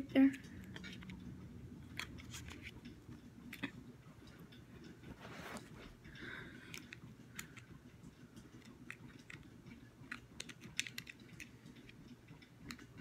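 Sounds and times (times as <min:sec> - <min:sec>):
fingers clicking plastic camera: 0:08.5 - 0:13.0.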